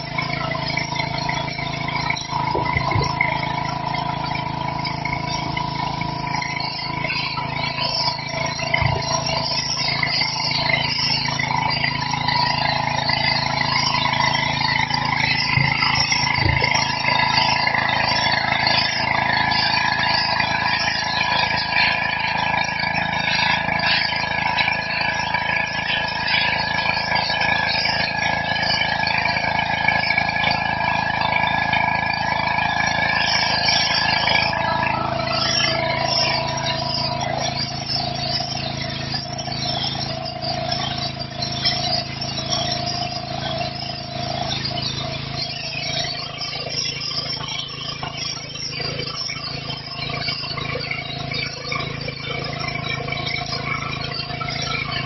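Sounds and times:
water jet spraying on stone: 0.0 - 52.9
pressure washer engine hum: 0.0 - 55.0.

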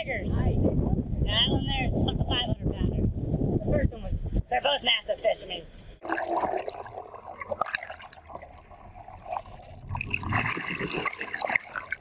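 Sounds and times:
water churning underwater: 6.0 - 12.0.

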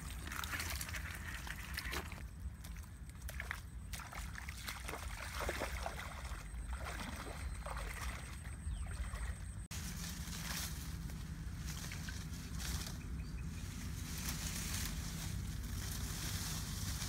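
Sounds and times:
footsteps splashing through water and mud: 0.0 - 10.7
steady low rumble: 6.1 - 17.0
leaves and branches brushing: 9.7 - 17.0.

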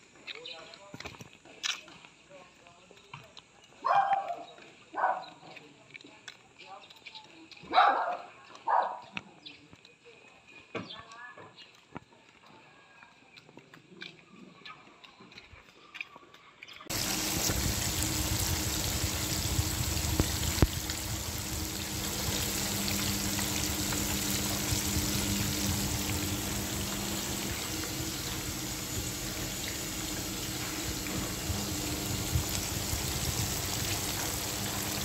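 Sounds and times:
fish deep-frying in oil: 16.9 - 35.0.

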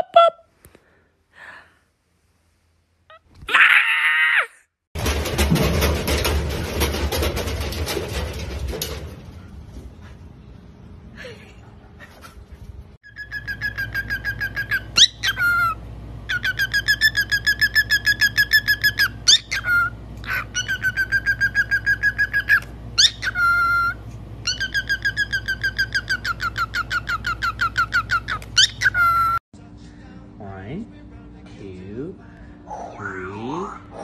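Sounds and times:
upward-sweeping bird whistle: 13.1 - 19.9
cockatiel chirping: 13.1 - 29.4.

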